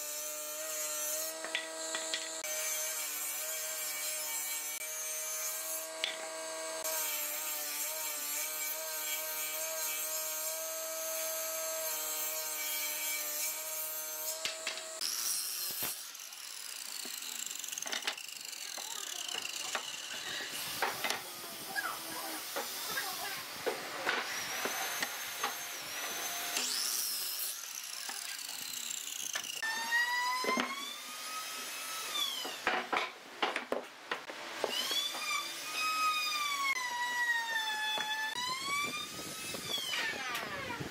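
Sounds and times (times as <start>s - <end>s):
miter saw cutting: 0.0s - 32.7s, 34.7s - 40.9s
table saw ripping boards: 0.6s - 3.1s.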